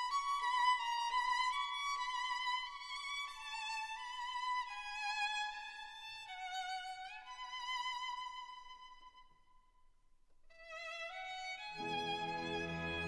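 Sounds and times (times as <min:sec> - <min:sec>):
violin slow sliding melody: 0:11.2 - 0:13.0.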